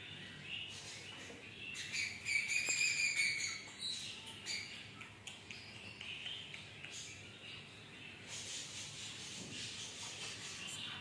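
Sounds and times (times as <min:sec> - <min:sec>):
cockatiel whistling and chattering: 0:01.8 - 0:04.8.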